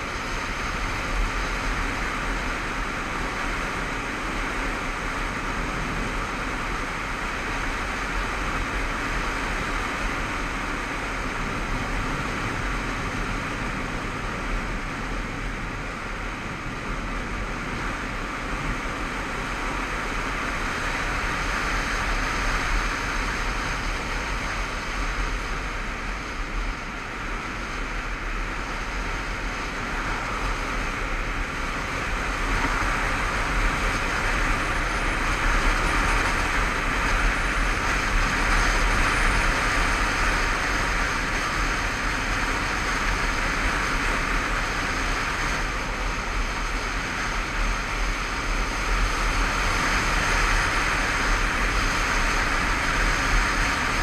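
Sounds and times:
motorcycle running: 0.0s - 54.0s
wind rushing over camera: 0.0s - 54.0s.

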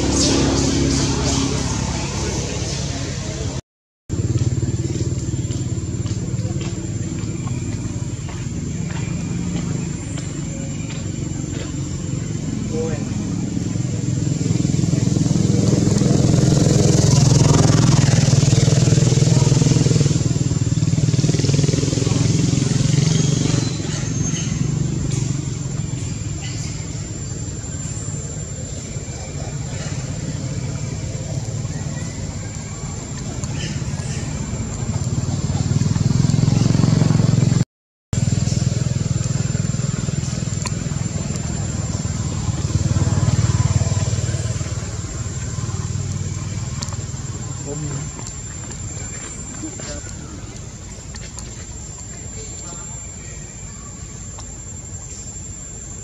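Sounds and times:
small engine running: 0.0s - 37.6s, 38.2s - 56.0s.

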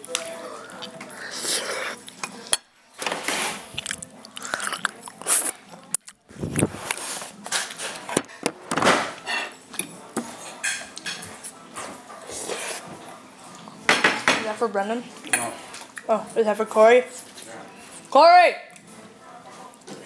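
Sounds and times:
chewing and crunching: 3.6s - 8.1s
dishes clattering: 13.9s - 14.6s.

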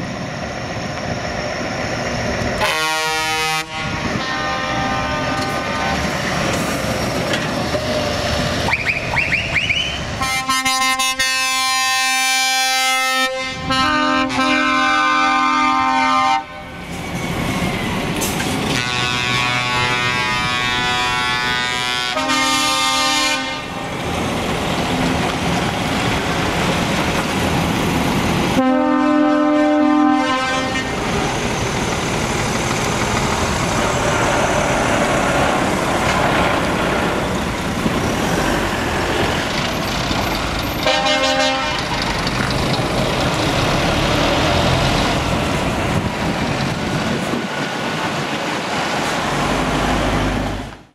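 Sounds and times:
truck diesel engines: 0.0s - 50.9s
chorded air horn blasts: 2.6s - 6.2s, 10.2s - 16.8s, 18.7s - 23.9s, 28.5s - 31.0s, 40.8s - 42.0s.

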